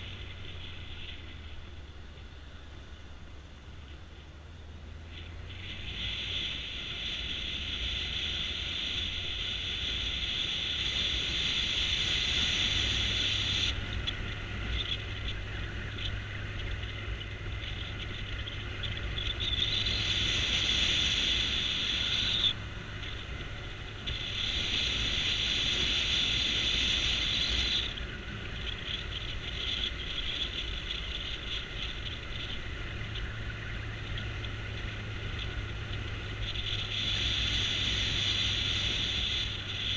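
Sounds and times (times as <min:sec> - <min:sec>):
motorcycle engine: 0:00.0 - 0:39.9
wind noise: 0:04.9 - 0:39.9
loud hiss: 0:23.6 - 0:28.0, 0:36.6 - 0:39.9.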